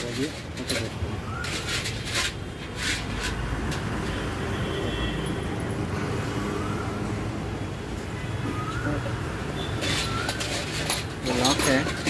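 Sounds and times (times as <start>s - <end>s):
low rumble of traffic: 0.0s - 12.0s.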